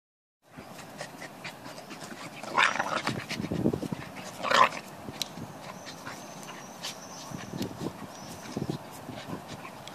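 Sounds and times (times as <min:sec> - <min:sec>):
dogs growling while playing: 0:00.7 - 0:05.0.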